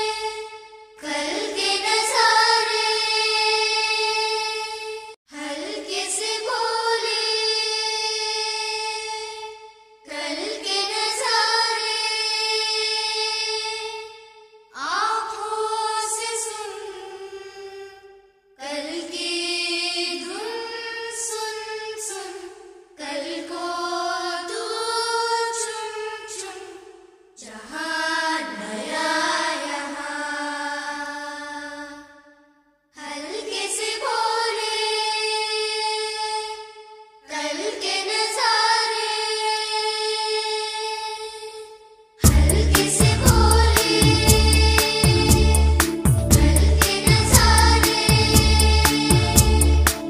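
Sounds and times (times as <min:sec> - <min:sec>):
woman singing chant-like melody: 0:00.0 - 0:14.1, 0:14.8 - 0:18.0, 0:18.6 - 0:32.2, 0:37.3 - 0:50.0
background music with singing: 0:33.0 - 0:50.0.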